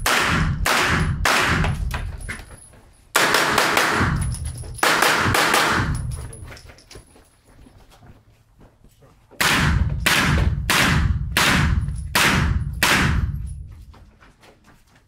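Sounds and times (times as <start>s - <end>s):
rifle shots echoing indoors: 0.0s - 1.9s, 3.1s - 6.1s, 9.4s - 13.6s.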